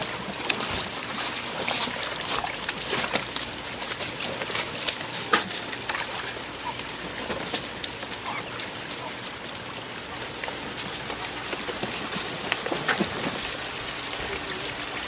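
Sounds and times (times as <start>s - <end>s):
pelican bills splashing water: 0.0s - 15.0s.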